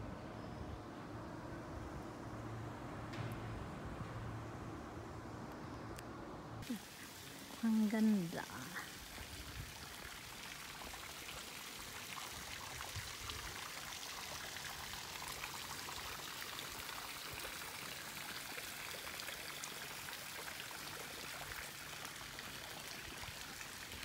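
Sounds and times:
running water splashing: 6.6 - 24.0.

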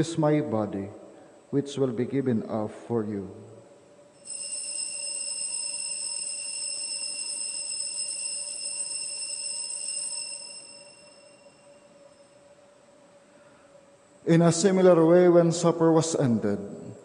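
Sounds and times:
bells ringing: 4.2 - 12.4.

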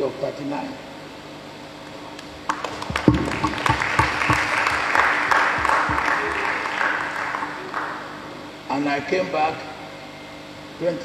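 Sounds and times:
low thumps: 2.4 - 7.5
audience applause: 2.5 - 8.4.

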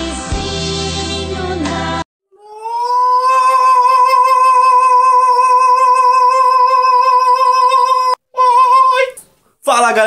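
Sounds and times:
man singing a long high note: 2.4 - 9.1.

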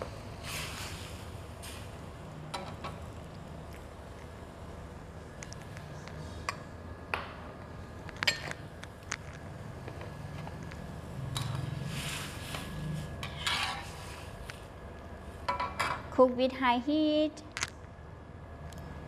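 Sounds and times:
steady low hum: 0.0 - 19.0
spatula stirring in steel wok: 11.8 - 14.4.

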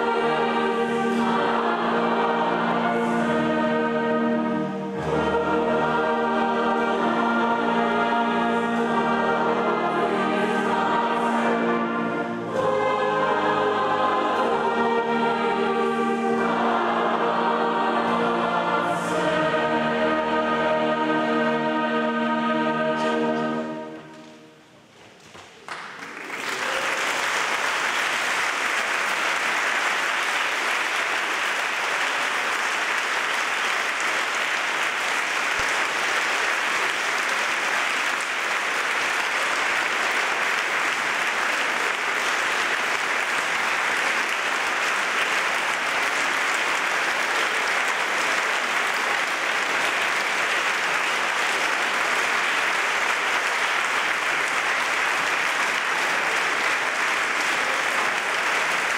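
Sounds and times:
audience applauding: 25.3 - 58.9.

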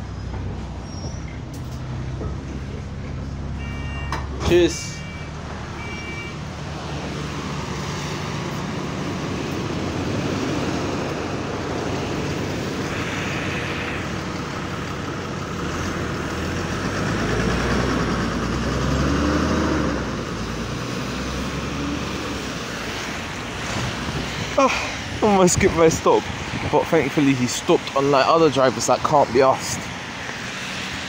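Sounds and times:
engine whine: 0.0 - 26.7
bus engine rumbling: 0.0 - 31.0
traffic on a wet road: 0.0 - 31.0.

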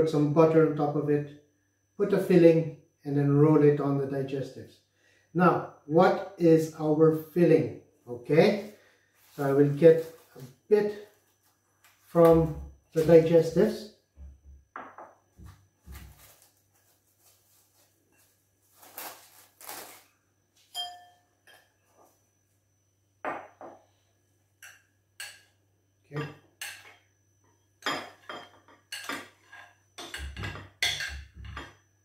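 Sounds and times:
spoon clinking on glass bowl: 20.7 - 21.7.

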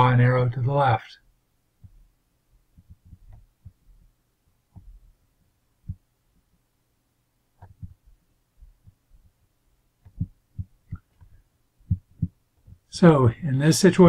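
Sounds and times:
low electrical hum: 0.0 - 14.0
microphone handling thumps: 2.8 - 3.9, 7.6 - 9.3, 10.0 - 12.9.

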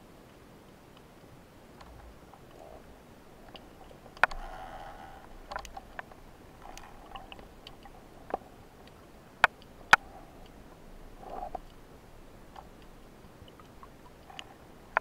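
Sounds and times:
low underwater hiss: 1.6 - 15.0
sharp underwater clicks and snaps: 3.4 - 4.6, 5.2 - 10.6, 12.5 - 15.0.

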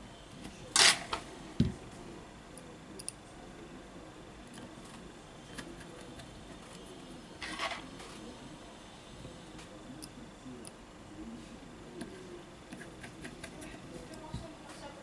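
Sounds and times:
tweezers clicking on metal: 3.0 - 3.2.

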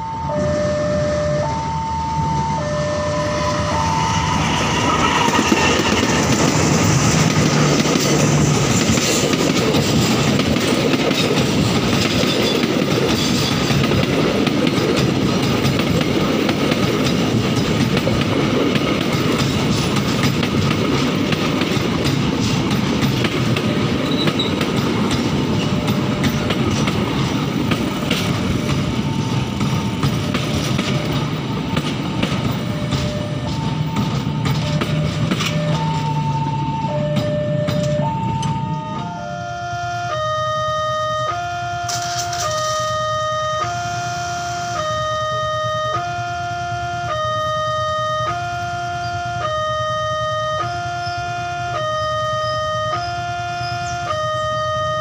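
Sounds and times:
train wheels clickety-clack: 3.3 - 39.1, 41.8 - 43.0
two-note train horn blasts: 38.9 - 55.0.

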